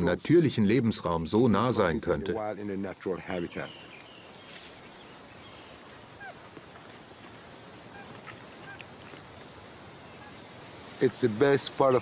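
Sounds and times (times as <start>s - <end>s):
faint steady hiss: 0.0s - 12.0s
short bird calls: 3.2s - 6.6s, 7.8s - 10.6s.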